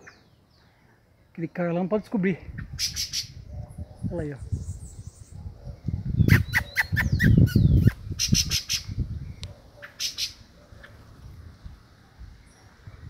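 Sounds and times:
bird squawking calls: 0:06.3 - 0:08.9, 0:09.8 - 0:11.0.

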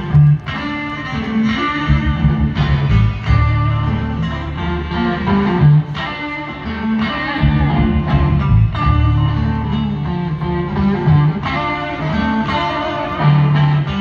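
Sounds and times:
blues band playing: 0:00.0 - 0:14.0
electric guitar: 0:00.0 - 0:14.0.

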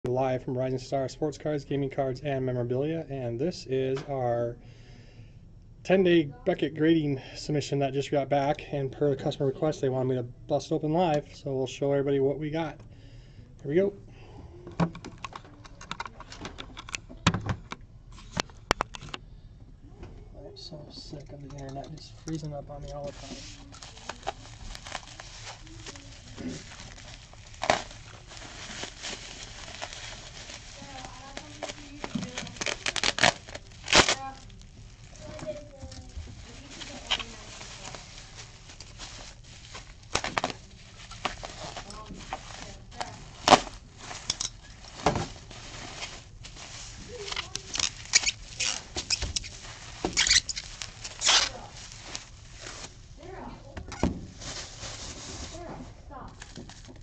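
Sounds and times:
bubble wrap crinkling: 0:23.0 - 0:57.0
bubble wrap sharp crack: 0:23.6 - 0:53.3.

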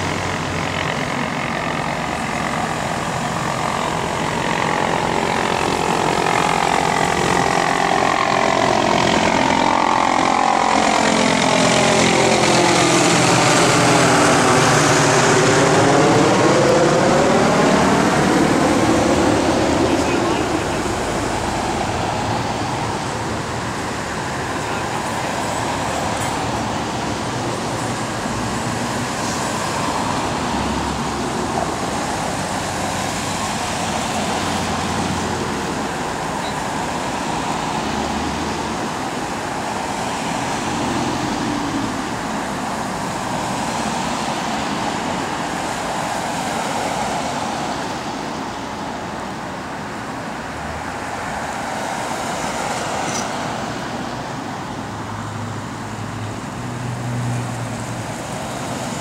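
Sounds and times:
cars driving past: 0:00.0 - 0:59.0.

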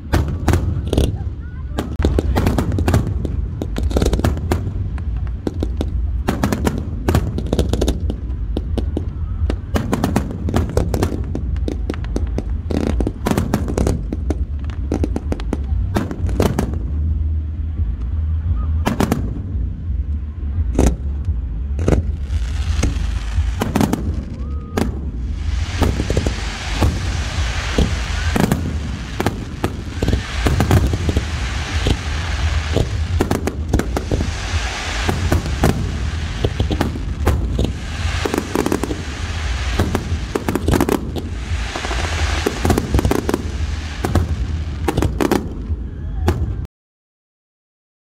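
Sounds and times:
fireworks cracks and bangs: 0:00.0 - 0:18.2, 0:18.8 - 0:46.7
low rumble: 0:00.0 - 0:46.7
hissing crackle: 0:22.0 - 0:45.6.

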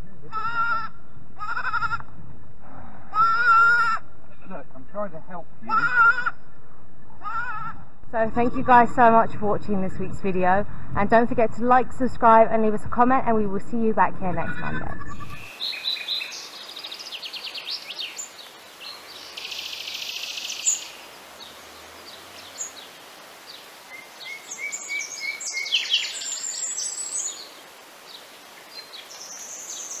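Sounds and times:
faint outdoor hiss: 0:00.0 - 0:30.0
songbirds singing and chirping: 0:12.2 - 0:30.0.

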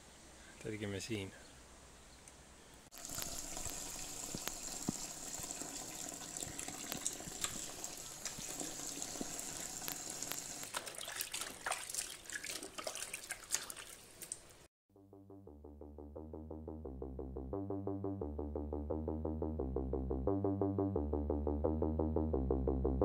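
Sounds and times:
tap water splashing into basin: 0:03.0 - 0:14.5
wet clothes sloshing in basin: 0:10.6 - 0:14.7.

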